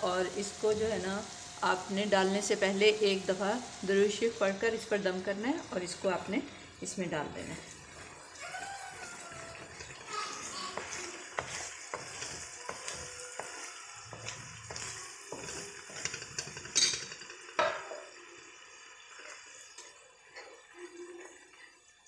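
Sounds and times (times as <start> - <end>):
onions sizzling in oil: 0.0 - 20.2
spatula knocking on pan: 9.0 - 16.6
wooden spatula scraping pan: 9.0 - 16.8.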